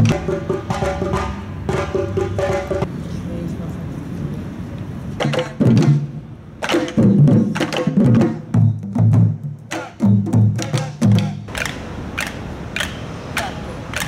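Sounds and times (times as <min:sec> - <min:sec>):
drums beating: 0:00.0 - 0:02.9, 0:05.2 - 0:14.0.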